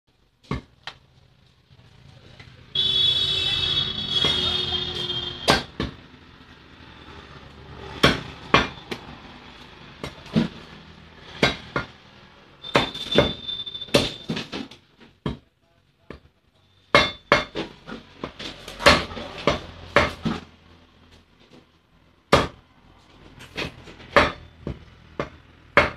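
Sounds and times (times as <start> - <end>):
cleaver chopping on wooden block: 5.5 - 6.0, 7.9 - 9.0, 11.3 - 11.9, 17.0 - 20.4, 22.3 - 22.6, 23.5 - 25.9.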